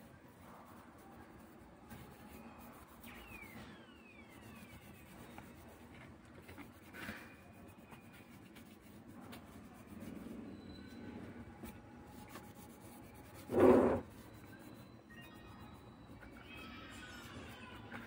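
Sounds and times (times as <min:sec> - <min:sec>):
tissue rubbing: 0:04.2 - 0:10.5, 0:11.6 - 0:14.9.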